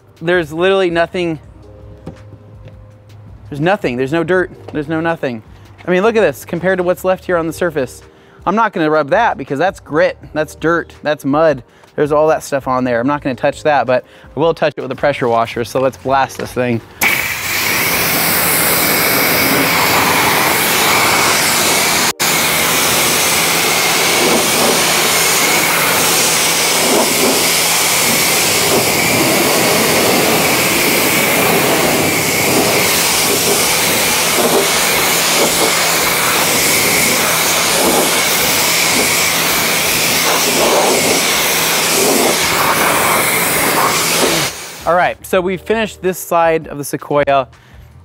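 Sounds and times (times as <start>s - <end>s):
pump motor humming: 17.0s - 44.8s
pressure washer spraying water: 17.0s - 44.9s.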